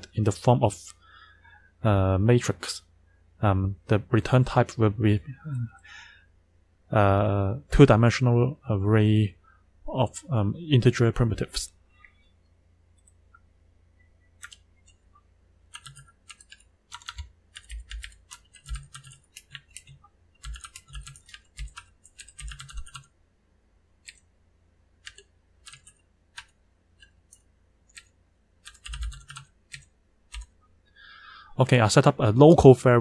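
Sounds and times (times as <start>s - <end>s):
computer keyboard typing: 14.4s - 15.0s, 15.7s - 23.1s, 24.0s - 24.3s, 25.0s - 30.5s.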